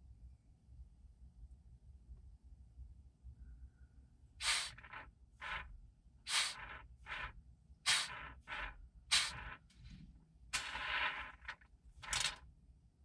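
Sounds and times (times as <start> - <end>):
air valve hissing spurts: 4.4 - 5.7, 6.3 - 7.3, 7.9 - 9.6, 10.6 - 12.4.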